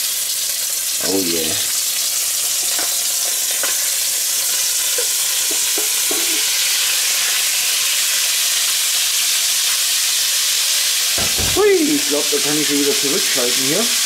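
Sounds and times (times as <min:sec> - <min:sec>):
meat sizzling in butter: 0:00.0 - 0:14.0
brief knocks: 0:11.2 - 0:11.7.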